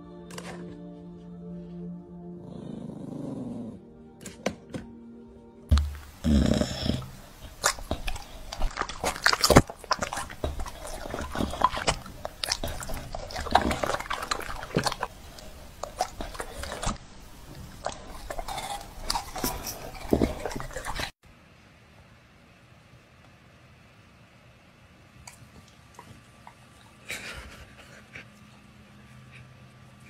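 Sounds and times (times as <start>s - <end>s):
dog chewing and crunching fruit: 5.7s - 21.2s.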